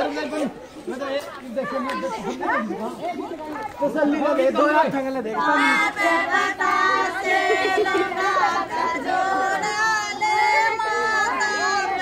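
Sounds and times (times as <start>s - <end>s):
women singing together: 5.4s - 12.0s.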